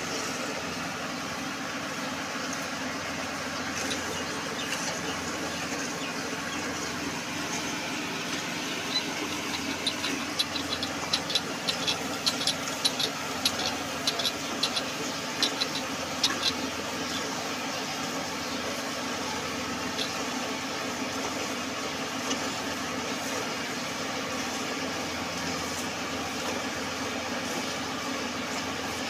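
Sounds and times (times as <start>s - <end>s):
sharp metallic clicks: 8.9s - 14.8s.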